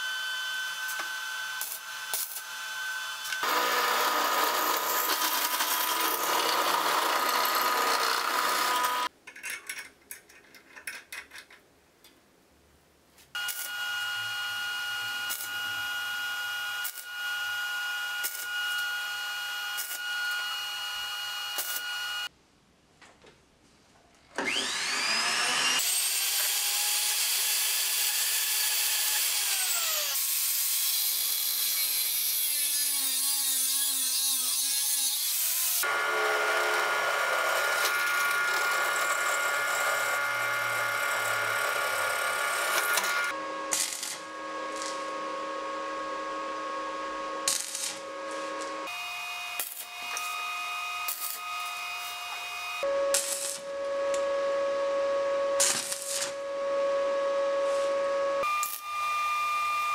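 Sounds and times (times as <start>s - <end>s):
rotary tool whine: 0.0s - 9.1s, 24.4s - 30.2s, 35.8s - 54.4s, 55.4s - 59.9s
steady power tool: 0.0s - 9.1s, 13.4s - 22.3s, 24.4s - 54.3s, 57.8s - 59.9s
rotary tool grinding steel: 0.5s - 9.1s, 24.5s - 45.1s, 47.4s - 53.5s.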